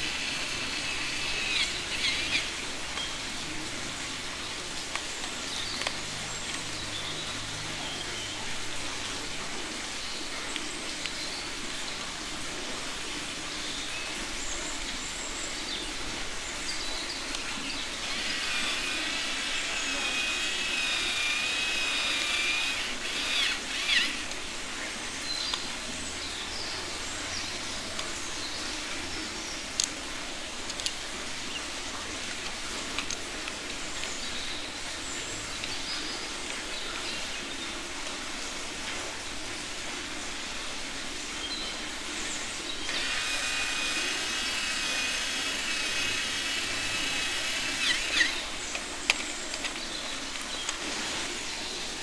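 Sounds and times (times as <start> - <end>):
toy electric drill whining: 0.0 - 2.6, 18.0 - 24.5, 42.8 - 49.2
plastic clicks: 32.4 - 34.1, 45.9 - 50.8.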